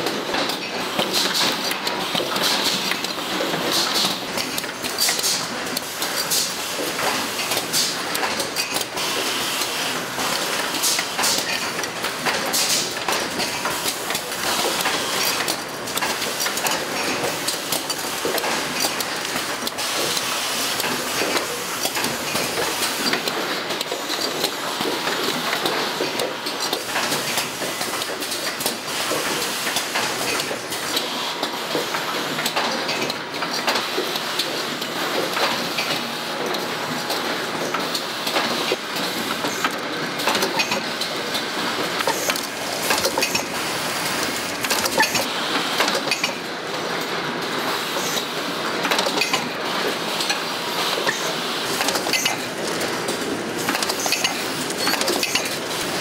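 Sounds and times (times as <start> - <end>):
machinery clattering: 51.0 - 56.0.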